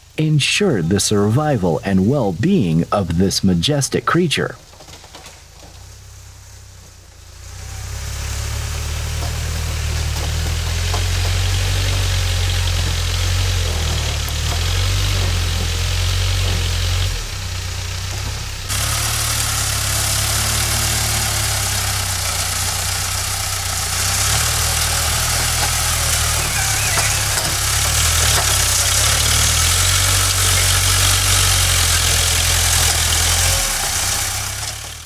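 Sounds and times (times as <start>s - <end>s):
diesel engine running: 0.0s - 35.0s
loader bucket pushing soil: 4.5s - 35.0s.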